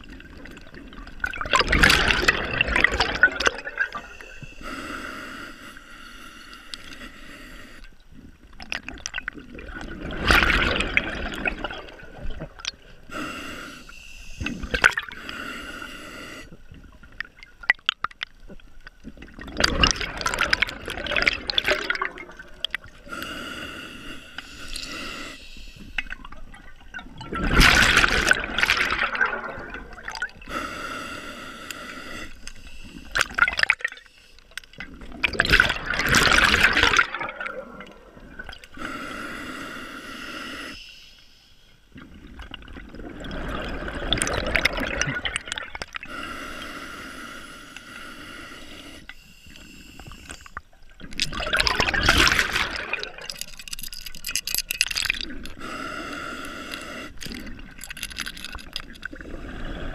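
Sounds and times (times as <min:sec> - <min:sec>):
exhaled bubbles bursting: 0:00.0 - 0:04.1, 0:08.6 - 0:12.9, 0:19.1 - 0:22.9, 0:26.1 - 0:30.5, 0:34.8 - 0:38.7, 0:42.0 - 0:46.1, 0:51.0 - 0:55.6
regulator hissing inhale: 0:04.0 - 0:07.9, 0:13.1 - 0:16.6, 0:22.9 - 0:26.1, 0:30.5 - 0:33.2, 0:38.7 - 0:41.9, 0:46.1 - 0:50.6, 0:55.5 - 0:57.4.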